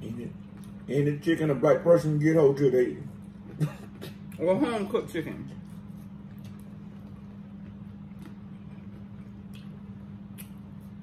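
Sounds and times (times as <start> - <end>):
steady low hum: 0.0 - 11.0
chewing clicks and smacks: 0.4 - 0.9, 5.6 - 11.0.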